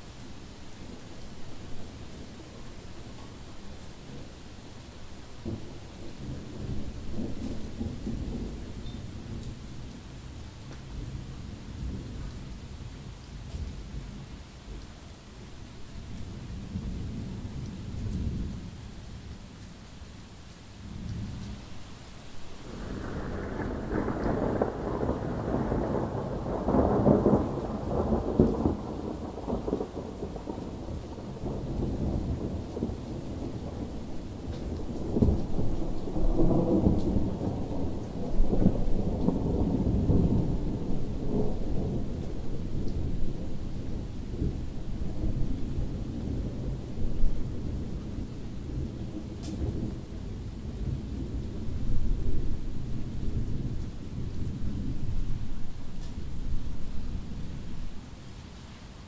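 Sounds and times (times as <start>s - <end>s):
rain falling: 0.0s - 59.0s
thunder rumbling: 5.4s - 10.0s, 22.5s - 58.1s.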